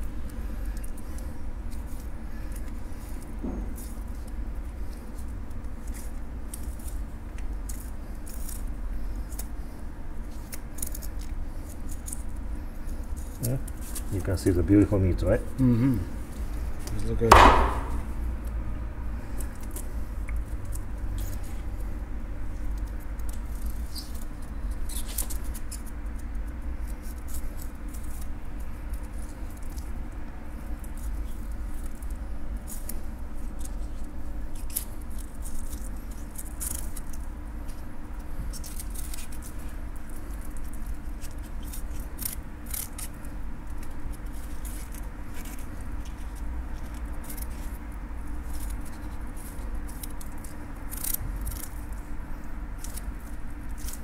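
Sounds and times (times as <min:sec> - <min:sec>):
steady low hum: 0:00.0 - 0:54.0
knife scratching along fish bones: 0:00.2 - 0:15.0, 0:22.6 - 0:54.0.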